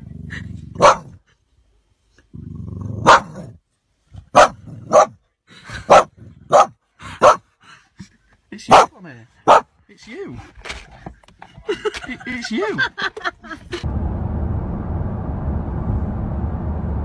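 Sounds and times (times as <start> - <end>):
dog barking: 0.8 - 1.2, 3.0 - 3.5, 4.3 - 5.2, 5.9 - 7.5, 8.7 - 9.7.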